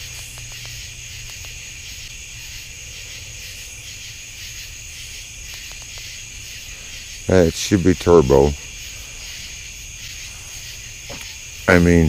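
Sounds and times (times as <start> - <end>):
faint clicks: 0.0 - 1.6, 5.4 - 6.1
crickets trilling: 0.0 - 12.0.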